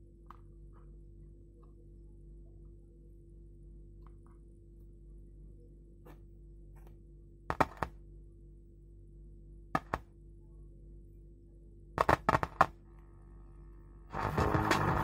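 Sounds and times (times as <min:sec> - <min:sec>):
low steady hum: 0:00.0 - 0:15.0
speaker pops and crackles: 0:12.0 - 0:12.8.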